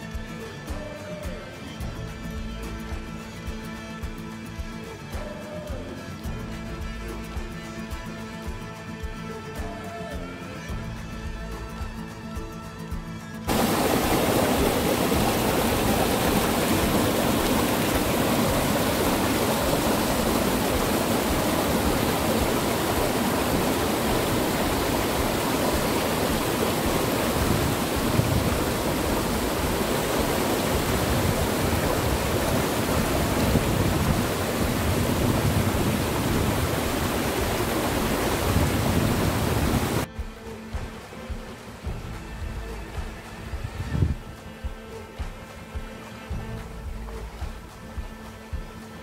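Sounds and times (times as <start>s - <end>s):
stream rushing over rocks: 13.5s - 44.2s.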